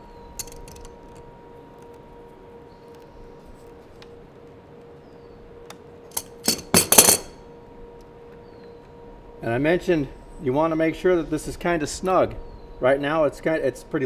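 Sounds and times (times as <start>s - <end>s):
faint steady hum: 0.0s - 14.0s
metal hand tools clinking: 0.4s - 1.2s, 6.1s - 7.3s.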